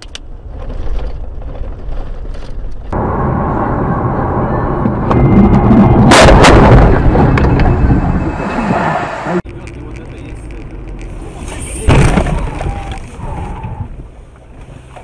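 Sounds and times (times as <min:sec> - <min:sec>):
car crash impact: 0:05.1 - 0:08.2.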